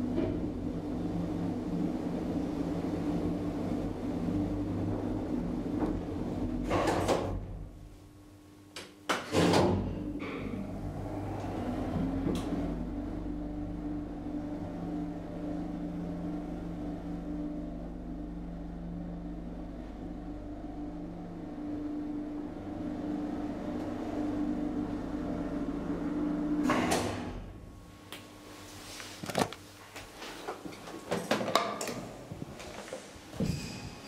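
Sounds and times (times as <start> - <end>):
elevator machinery humming: 0.0 - 8.0, 10.0 - 28.5.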